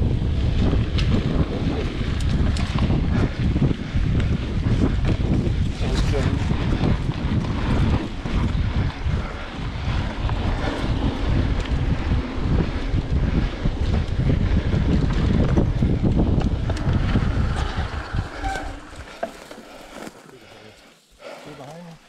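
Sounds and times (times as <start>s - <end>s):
tyre noise on dirt trail: 0.0s - 22.0s
wind buffeting microphone: 0.0s - 22.0s
bike clicks and knocks: 0.5s - 1.4s, 2.0s - 3.4s, 13.8s - 20.3s.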